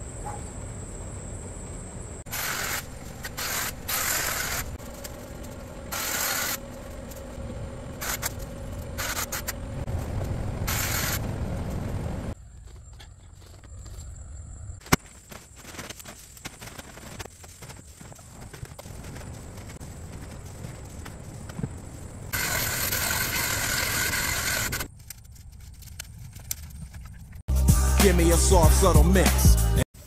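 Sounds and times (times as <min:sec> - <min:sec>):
shrub branches rustling: 0:14.8 - 0:22.3.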